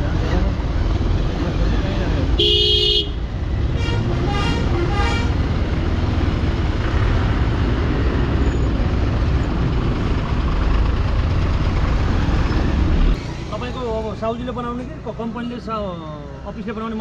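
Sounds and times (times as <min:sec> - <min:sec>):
road and wind noise: 0:00.0 - 0:17.0
vehicle horn: 0:02.4 - 0:05.4.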